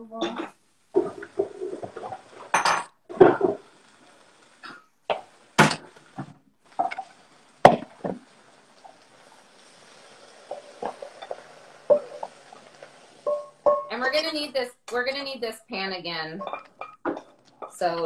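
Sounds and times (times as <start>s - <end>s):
faint hiss: 0.0s - 18.0s
wooden spoon knocking on pan: 10.5s - 12.3s, 13.2s - 14.0s.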